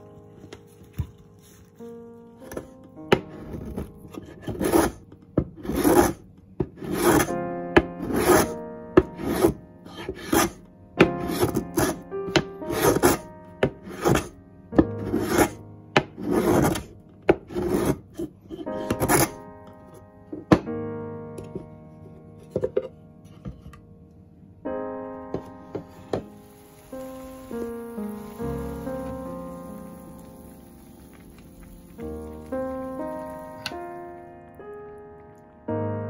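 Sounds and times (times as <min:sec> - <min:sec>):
soft background piano music: 0:00.0 - 0:36.0
rasping strokes shaving a block: 0:03.4 - 0:05.0, 0:05.6 - 0:06.2, 0:06.8 - 0:07.3, 0:08.0 - 0:08.6, 0:09.2 - 0:10.6, 0:11.2 - 0:12.0, 0:12.6 - 0:13.2, 0:13.9 - 0:14.3, 0:15.0 - 0:15.6, 0:16.2 - 0:16.9, 0:17.5 - 0:19.4.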